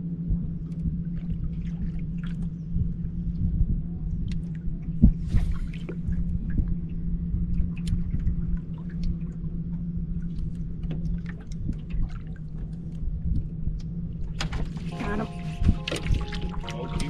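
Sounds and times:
wind rumbling on microphone: 0.0s - 16.6s
steady low hum: 0.0s - 17.0s
waves lapping against boat hull: 7.5s - 13.6s.

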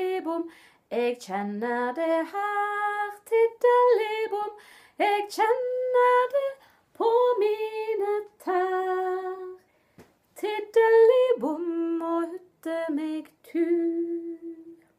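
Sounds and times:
woman singing unaccompanied: 0.0s - 9.6s, 10.4s - 14.9s.

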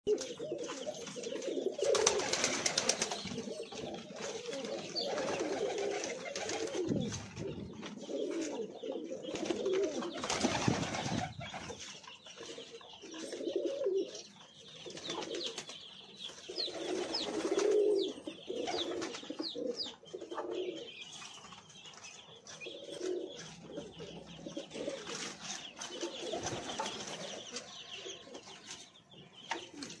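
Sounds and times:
pigeons cooing: 0.1s - 28.8s.

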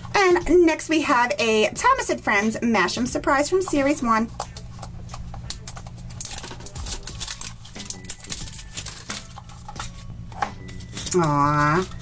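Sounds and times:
plastic capsule clicks and crinkles: 4.3s - 12.0s.

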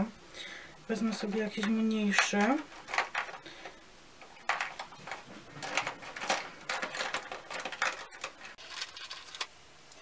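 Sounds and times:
brushes and cases clicking: 4.4s - 9.5s.

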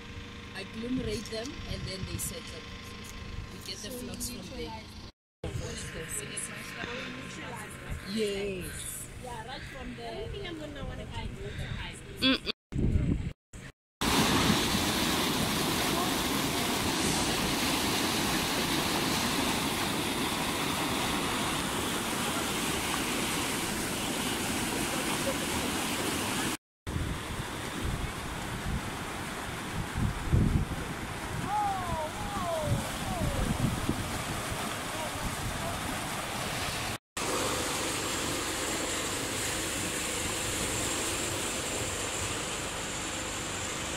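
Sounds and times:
water rushing over weir: 14.0s - 43.9s.

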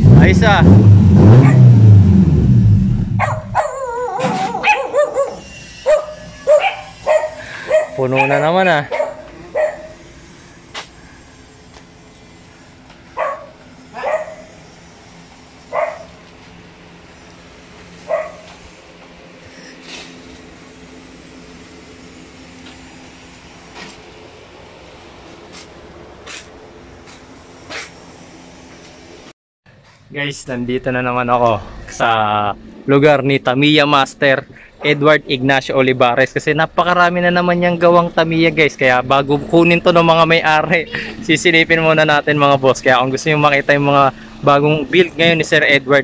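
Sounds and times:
vehicle engine droning: 0.0s - 46.0s
dog barking and whining: 1.3s - 1.7s, 3.2s - 10.1s, 13.2s - 14.6s, 15.7s - 16.2s, 18.0s - 18.6s
background hum with faint tones: 2.5s - 46.0s.

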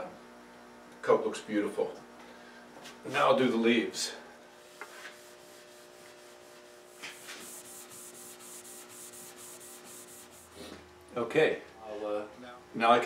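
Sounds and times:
steel wool rubbing on wood: 4.6s - 10.7s.

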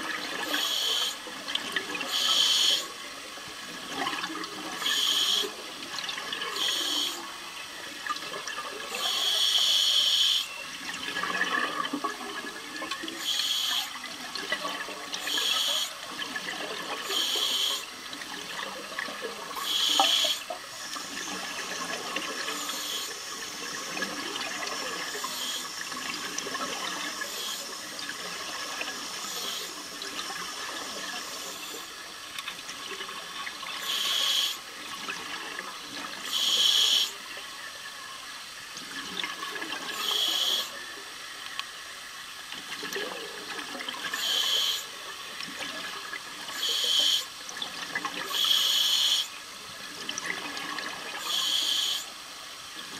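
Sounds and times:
steady underwater hiss: 0.0s - 52.9s
diver's exhaled bubbles gurgling: 10.9s - 13.2s.

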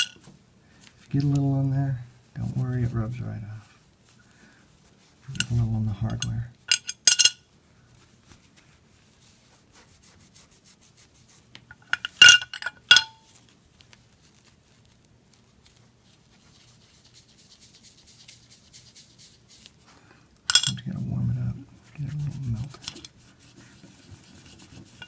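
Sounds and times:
pipe clinking on ceramic tray: 6.1s - 7.4s, 11.8s - 13.2s, 20.5s - 20.9s
cloth rubbing in polish tub: 8.1s - 11.5s, 13.3s - 19.9s, 20.9s - 25.0s
cloth rubbing wooden pipe: 8.1s - 11.6s, 13.2s - 19.9s, 20.8s - 25.0s.

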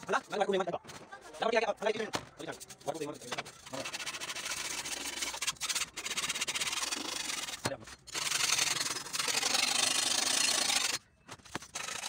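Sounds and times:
steel scraper rasping on blade: 2.4s - 12.0s.

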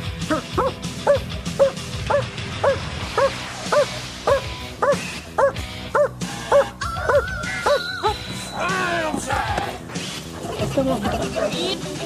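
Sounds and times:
dog barking: 0.6s - 7.8s.

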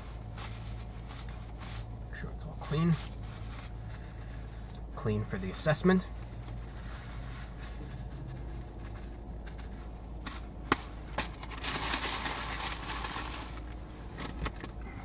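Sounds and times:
paper wrapper crinkling: 6.2s - 13.9s.

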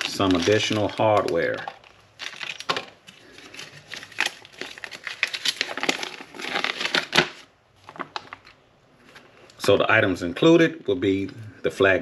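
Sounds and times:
packaging crinkling: 0.0s - 9.2s.

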